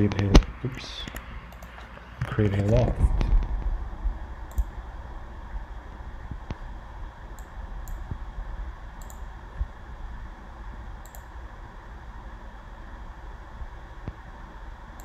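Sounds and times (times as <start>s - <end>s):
low room rumble: 0.0s - 15.0s
computer mouse clicking: 1.0s - 2.8s, 4.5s - 4.7s, 7.3s - 8.0s, 9.0s - 9.3s, 11.0s - 11.3s.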